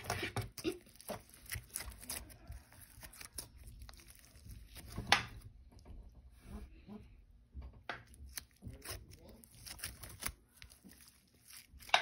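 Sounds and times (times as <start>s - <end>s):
slime crackling and popping: 0.0s - 5.4s, 8.0s - 12.0s.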